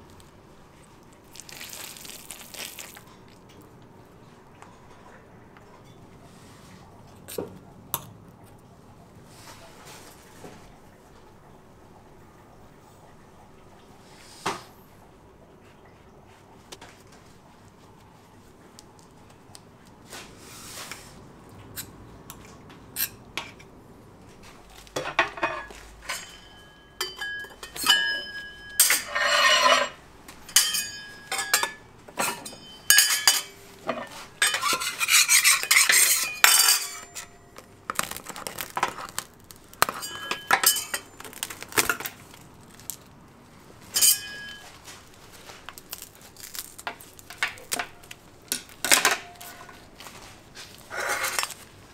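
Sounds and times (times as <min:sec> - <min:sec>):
metal tools clinking on table: 0:25.0 - 0:37.4, 0:39.9 - 0:41.5, 0:44.0 - 0:44.8.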